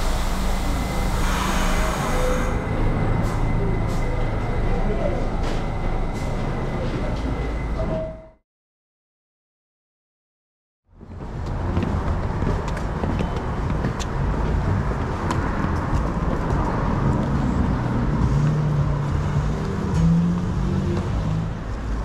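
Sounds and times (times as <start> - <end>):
vehicle engine drone: 0.0 - 7.8, 10.9 - 22.0
city traffic passing cars: 0.0 - 8.0, 10.9 - 22.0.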